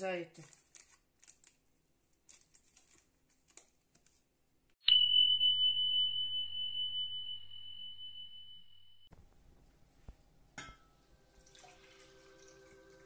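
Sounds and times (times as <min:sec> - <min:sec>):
bell-like chime ringing: 0:04.8 - 0:09.1.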